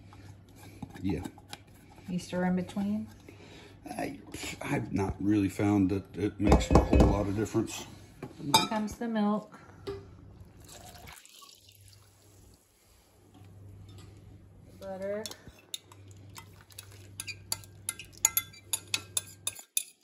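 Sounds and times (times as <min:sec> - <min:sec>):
milk pouring into metal bowl: 0:10.4 - 0:12.5
metal spoon clinking on glass: 0:17.2 - 0:20.0.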